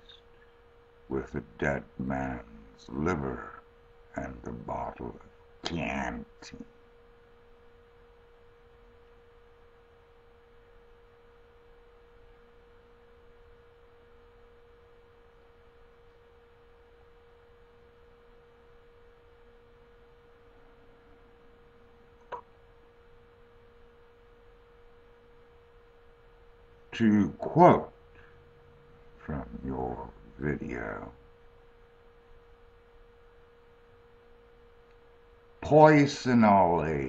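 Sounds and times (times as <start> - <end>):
faint steady hum: 0.0 - 37.0
low hiss: 0.0 - 37.0.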